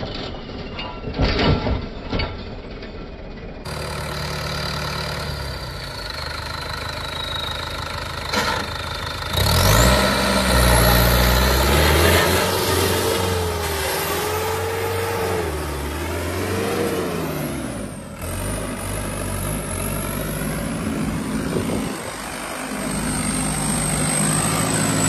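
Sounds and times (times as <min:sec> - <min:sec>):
tractor diesel engine: 0:00.0 - 0:25.0
tyres churning through soil: 0:07.4 - 0:25.0.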